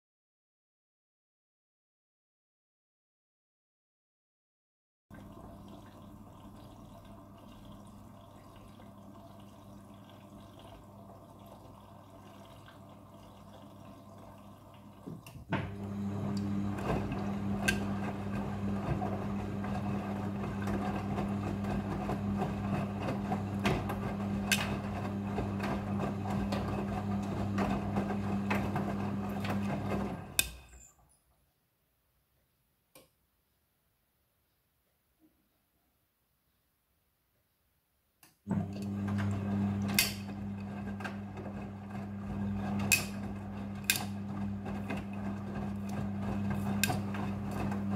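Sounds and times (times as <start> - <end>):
washing machine water splashing: 5.1 - 30.7, 38.5 - 47.9
washing machine hum: 5.1 - 30.9, 38.4 - 47.9.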